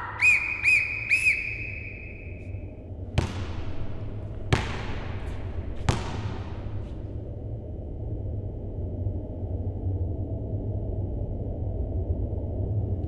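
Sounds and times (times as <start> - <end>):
warbling sports whistle blasts: 0.0 - 2.6
basketball bouncing on hall floor: 3.1 - 7.4.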